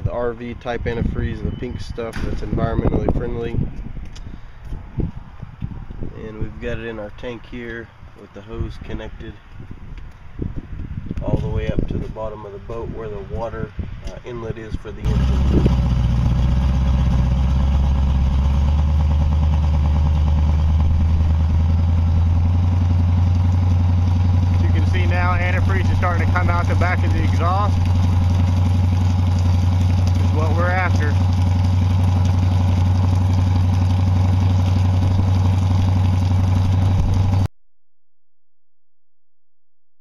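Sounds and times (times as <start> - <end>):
liquid splashing from exhaust: 15.0 - 37.5
boat engine idling: 15.1 - 37.5.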